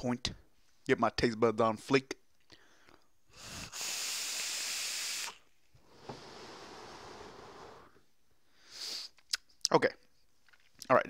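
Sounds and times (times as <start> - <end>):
breathy hiss: 2.6 - 9.2
vape atomizer hissing: 3.3 - 8.0
vapour puff exhaled: 3.3 - 8.0, 8.6 - 9.2.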